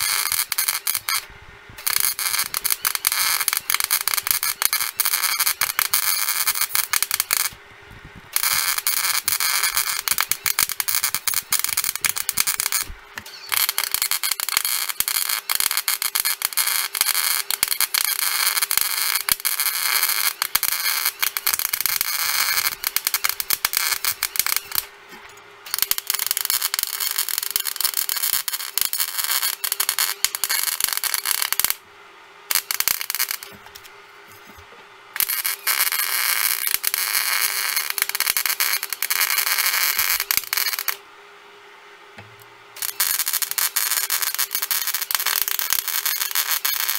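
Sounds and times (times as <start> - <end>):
welding arc crackling and sizzling: 0.0 - 41.1, 42.2 - 46.9.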